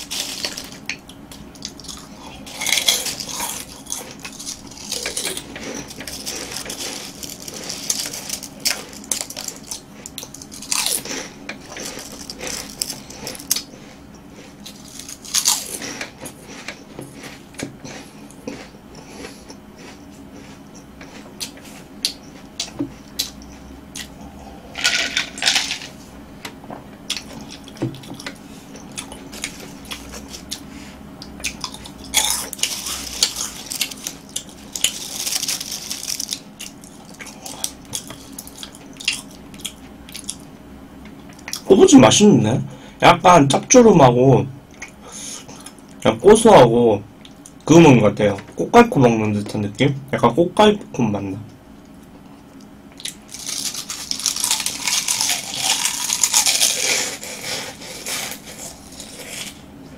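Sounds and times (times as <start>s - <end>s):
crunching and chewing snacks: 0.0s - 26.0s, 27.1s - 40.5s, 51.8s - 59.6s.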